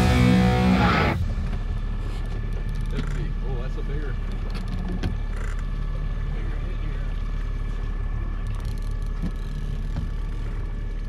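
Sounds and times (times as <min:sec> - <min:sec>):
outboard motor running: 0:00.0 - 0:11.0.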